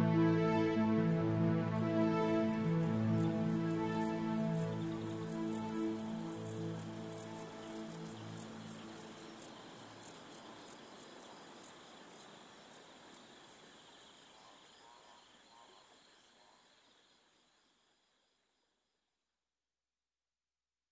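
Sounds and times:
soft music: 0.0 - 10.3.

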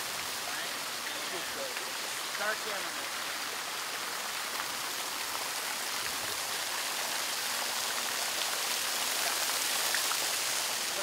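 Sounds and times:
fountain water splashing into basin: 0.0 - 11.0.

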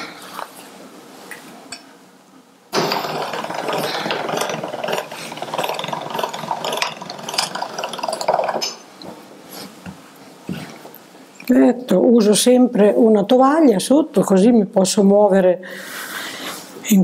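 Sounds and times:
pasta machine gears rattling: 2.8 - 9.0.

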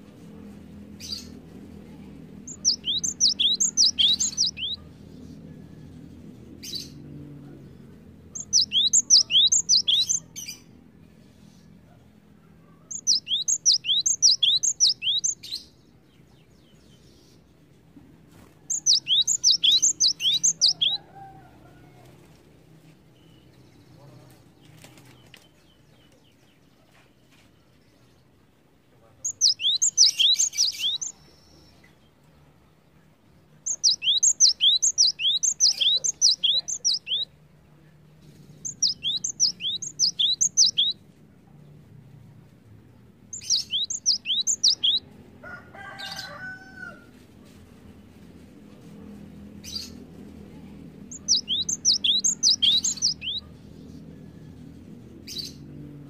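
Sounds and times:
bird singing sharp high notes: 2.5 - 4.8, 8.4 - 10.3, 12.9 - 15.4, 18.8 - 21.0, 29.3 - 31.2, 33.7 - 37.3, 38.6 - 41.0, 43.4 - 45.0, 51.1 - 53.4.

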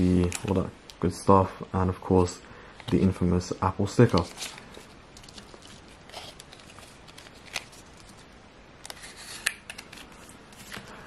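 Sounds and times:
paper packaging rustling: 3.8 - 8.2.

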